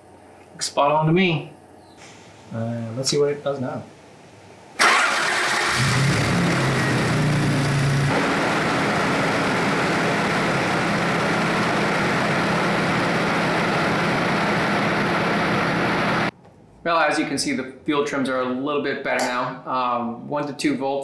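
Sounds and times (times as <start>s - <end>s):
car engine starting and idling: 4.8s - 16.3s.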